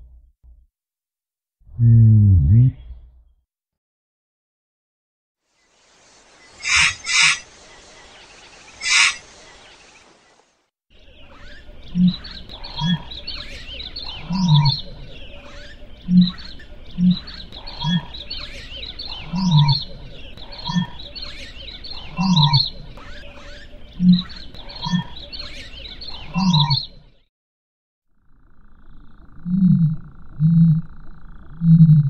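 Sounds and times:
wildlife chirps: 0:05.6 - 0:27.3, 0:28.2 - 0:32.0.

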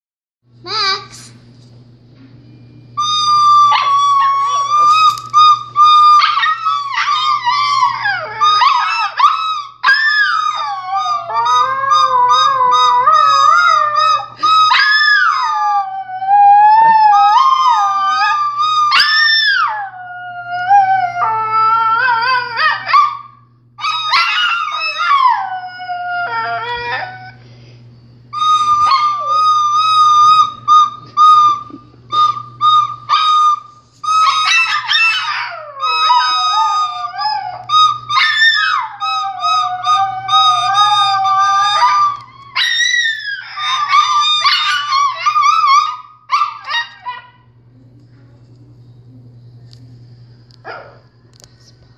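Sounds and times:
recorder playing: 0:03.0 - 0:09.6, 0:10.4 - 0:15.8, 0:28.3 - 0:42.3
dog howling: 0:03.0 - 0:27.4, 0:28.4 - 0:47.5.

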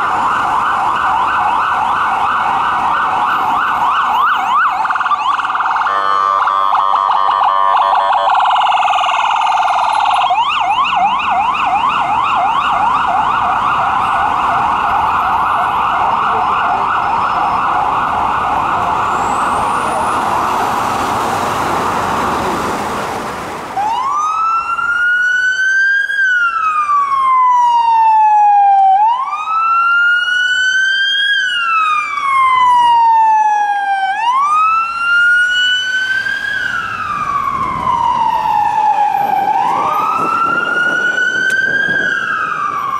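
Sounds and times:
electronic siren: 0:00.0 - 0:20.8, 0:23.8 - 0:42.9.

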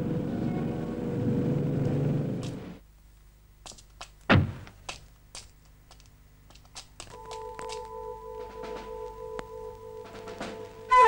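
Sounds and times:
engine-like rumble with hum: 0:00.0 - 0:02.8
loud short thunk: 0:04.3 - 0:04.7.

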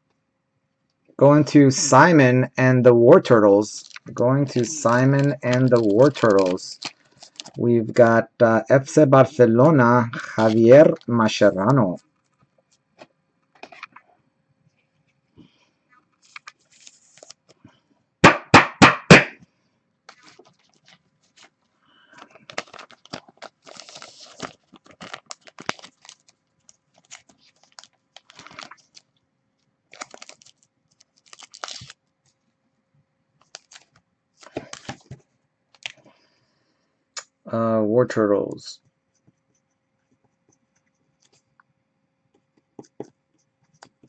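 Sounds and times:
plastic sleeves rustling: 0:03.2 - 0:07.7, 0:08.9 - 0:14.1, 0:15.4 - 0:17.9, 0:20.0 - 0:32.6, 0:33.3 - 0:36.3
loud knocks: 0:18.2 - 0:19.4.

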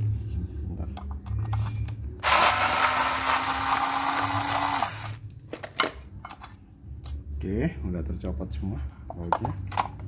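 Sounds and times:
electric screwdriver motor: 0:02.2 - 0:05.2.

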